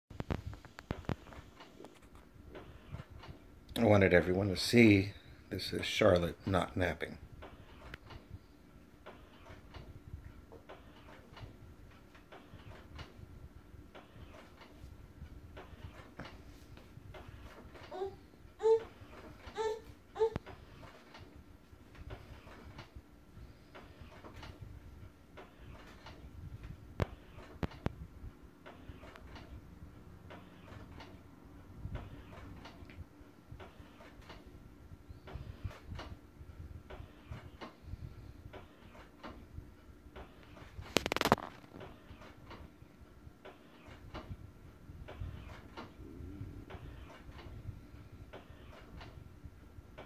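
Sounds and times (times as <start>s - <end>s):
faint steady hum: 0.1s - 50.0s
baby swing ticking and clicking: 5.8s - 23.0s, 23.6s - 28.0s, 40.1s - 42.7s.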